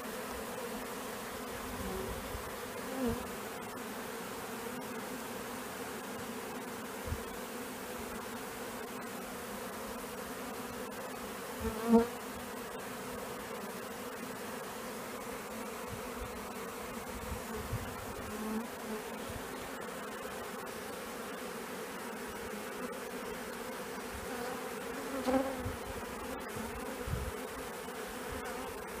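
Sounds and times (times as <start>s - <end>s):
honeybees buzzing: 0.0s - 29.0s.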